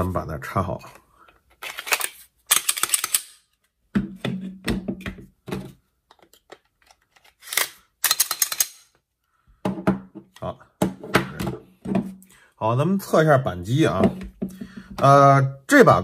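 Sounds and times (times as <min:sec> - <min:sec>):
pistol slide scraping: 0:01.6 - 0:03.4, 0:07.1 - 0:08.9.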